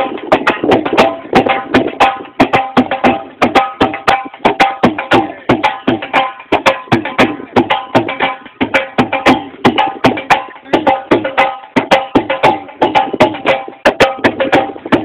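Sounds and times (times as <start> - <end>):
hand drum beaten fast: 0.0 - 15.0.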